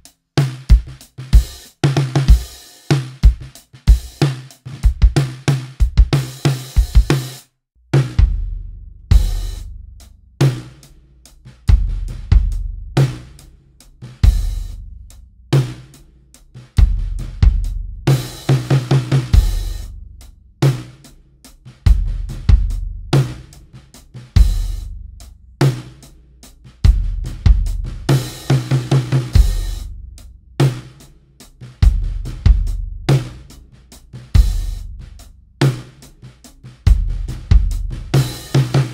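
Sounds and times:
drum kit playing groove: 0:00.0 - 0:38.9
marching bass drum resonating: 0:00.0 - 0:38.9
deep bass drum: 0:03.2 - 0:07.2, 0:07.9 - 0:10.8, 0:11.5 - 0:15.8, 0:16.6 - 0:21.0, 0:21.7 - 0:26.0, 0:26.7 - 0:30.9, 0:31.7 - 0:35.9, 0:36.8 - 0:38.9.

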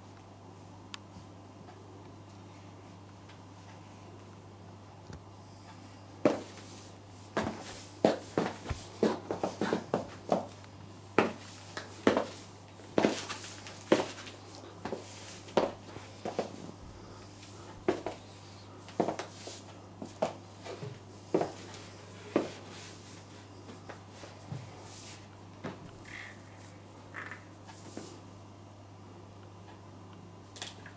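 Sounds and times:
high heels clicking on tile floor: 0:07.4 - 0:10.6, 0:11.2 - 0:16.6.

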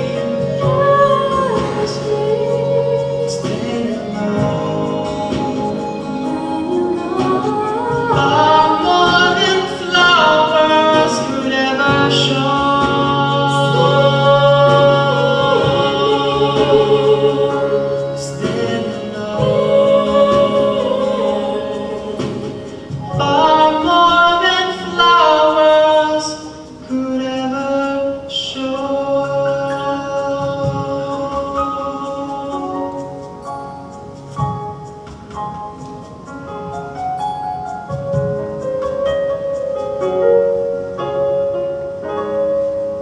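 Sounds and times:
man and woman singing duet: 0:00.0 - 0:34.0
musical accompaniment low notes: 0:00.0 - 0:43.0.

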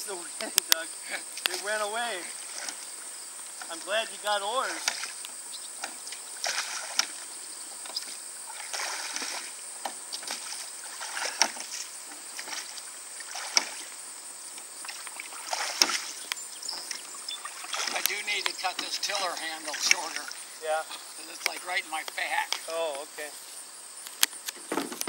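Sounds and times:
oars splashing: 0:00.0 - 0:23.1.

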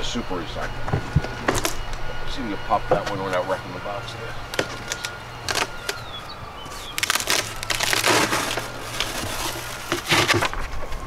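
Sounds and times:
cardboard carton creaking and crinkling: 0:04.5 - 0:11.0
cardboard scraping and crumpling: 0:06.6 - 0:11.0.

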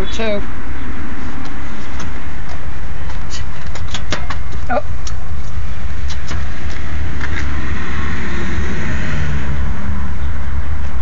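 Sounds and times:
loud low rumble: 0:05.6 - 0:11.0.

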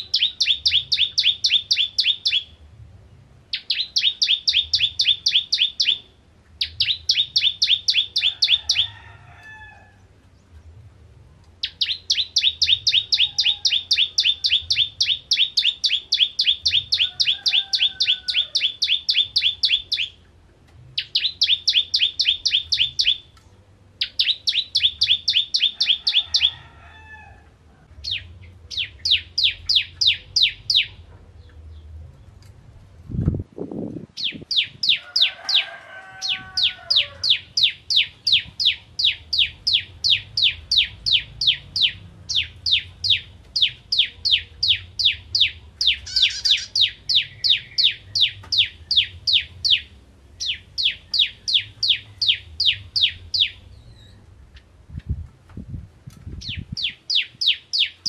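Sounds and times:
bird singing rapid high notes: 0:37.3 - 0:54.2.

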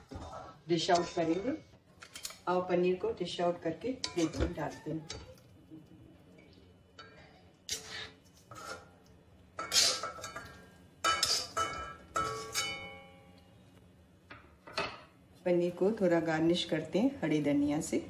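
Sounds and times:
spoon scraping metal pan: 0:00.0 - 0:02.4, 0:04.0 - 0:05.2, 0:07.0 - 0:09.0, 0:09.6 - 0:13.0.

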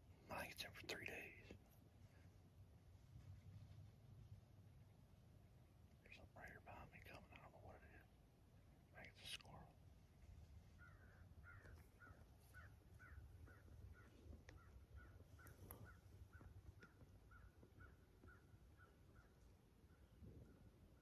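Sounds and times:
faint short animal calls: 0:10.7 - 0:19.4.

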